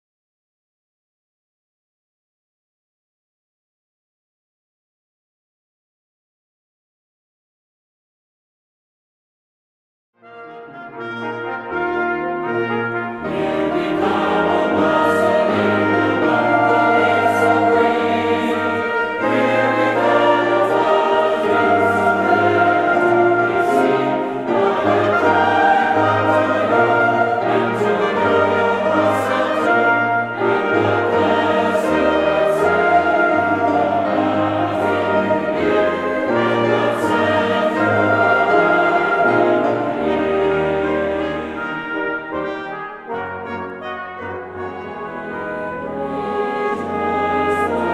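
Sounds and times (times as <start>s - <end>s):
brass ensemble playing: 10.2s - 47.9s
large choir singing: 11.0s - 47.9s.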